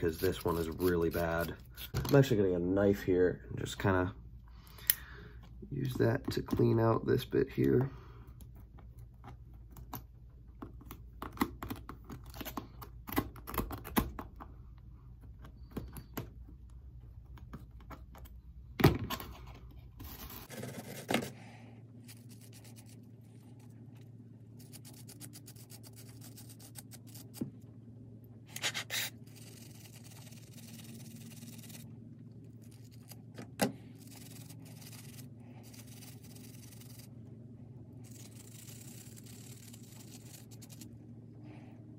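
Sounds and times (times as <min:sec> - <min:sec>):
wire brush scrubbing: 0:00.0 - 0:01.9, 0:33.9 - 0:37.2
knife scraping metal: 0:28.5 - 0:31.9.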